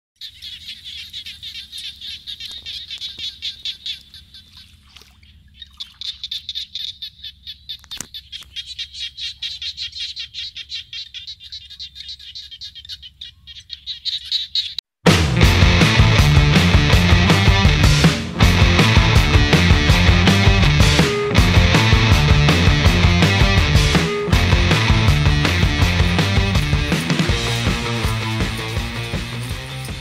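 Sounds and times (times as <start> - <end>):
small animal chirping rapidly: 0.2 - 14.8.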